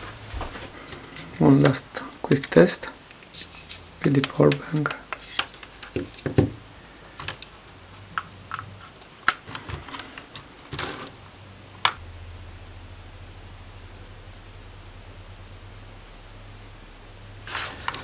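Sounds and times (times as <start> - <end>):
faint low hum: 0.0 - 18.0
plastic clicks and rattles: 7.2 - 7.5.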